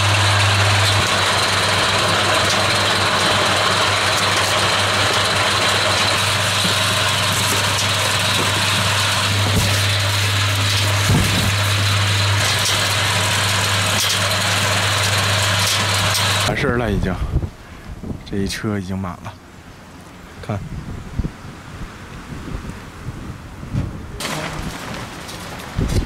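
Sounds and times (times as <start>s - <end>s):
vehicle engine idling: 0.0s - 16.5s.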